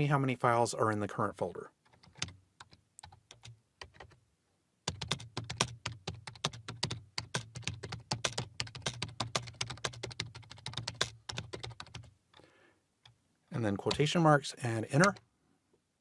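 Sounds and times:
typing on computer keyboard: 1.8 - 4.2, 4.9 - 12.5, 15.0 - 15.2.

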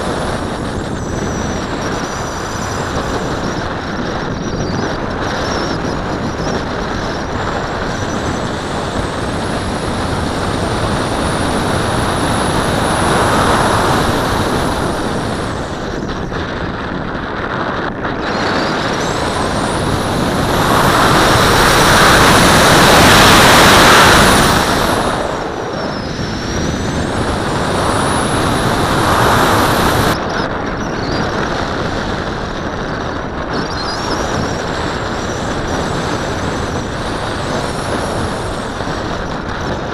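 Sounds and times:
air rushing past camera: 5.0 - 30.5.

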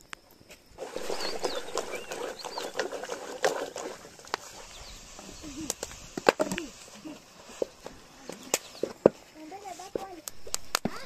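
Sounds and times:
animal calls: 0.9 - 4.0.

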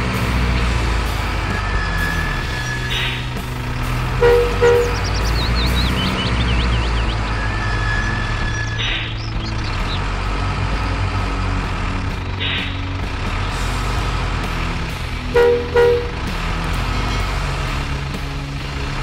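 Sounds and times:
truck engine drone: 0.0 - 19.0
horn toots: 1.4 - 6.7, 15.1 - 16.6.

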